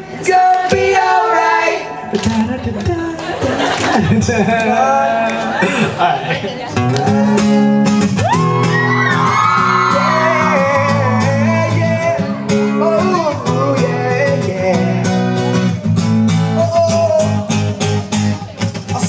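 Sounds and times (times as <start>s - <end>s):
acoustic guitar strumming: 6.7s - 19.0s
long high vocal shout: 7.0s - 11.4s.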